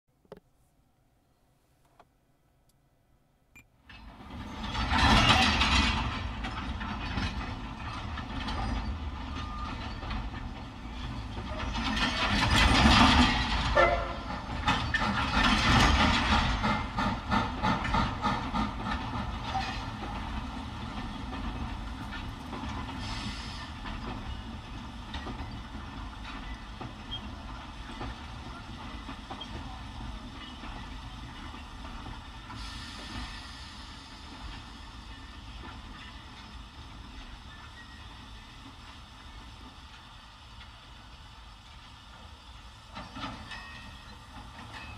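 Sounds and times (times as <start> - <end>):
steam locomotive through car speakers: 32.5 - 35.5.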